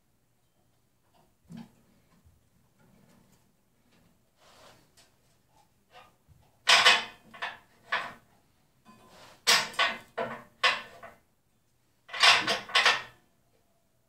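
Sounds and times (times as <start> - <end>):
metal tools clattering and scraping: 12.1 - 13.2.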